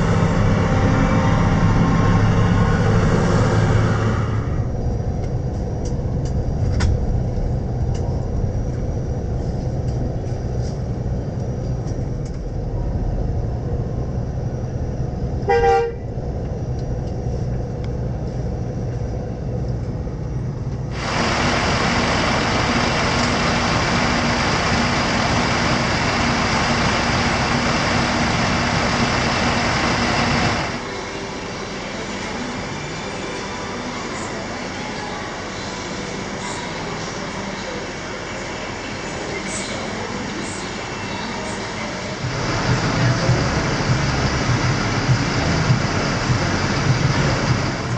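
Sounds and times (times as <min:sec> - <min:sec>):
bus engine and road rumble: 0:00.0 - 0:47.9
vehicle horn toot: 0:15.5 - 0:16.1
loud steady hiss: 0:21.0 - 0:30.8.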